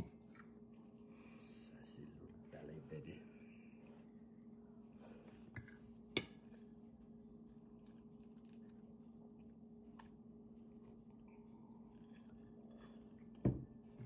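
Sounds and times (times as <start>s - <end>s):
person chewing food: 7.5s - 13.9s.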